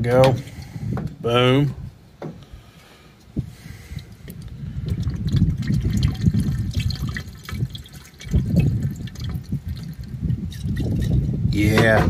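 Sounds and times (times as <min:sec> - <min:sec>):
liquid glugging from bottle: 0:03.9 - 0:11.3.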